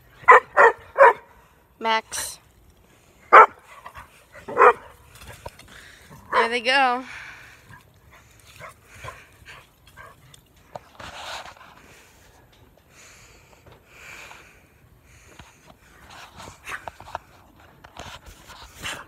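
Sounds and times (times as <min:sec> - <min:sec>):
dog panting and sniffing: 0:03.3 - 0:06.4, 0:07.6 - 0:11.7.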